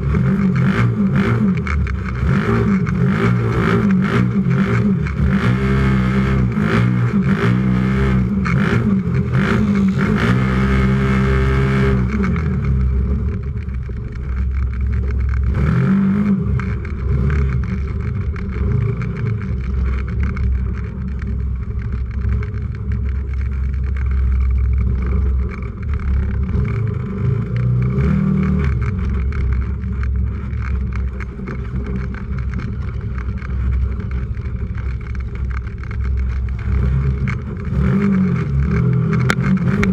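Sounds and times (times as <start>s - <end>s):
engine revving under load: 0.0s - 13.4s, 15.3s - 19.7s, 24.8s - 30.4s, 36.2s - 39.9s
knocks and rattles: 8.2s - 39.9s.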